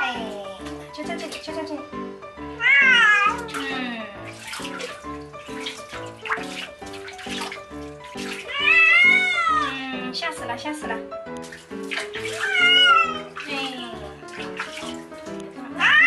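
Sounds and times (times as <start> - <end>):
cat meowing: 2.6 - 3.8, 8.4 - 10.0, 12.3 - 13.4, 15.8 - 16.0.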